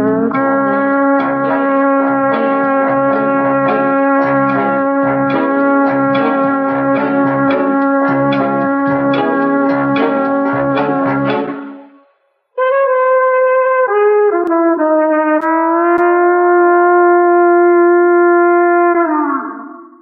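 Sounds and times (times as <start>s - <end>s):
backing band chord: 0.0s - 12.1s
solo trumpet: 0.0s - 19.3s.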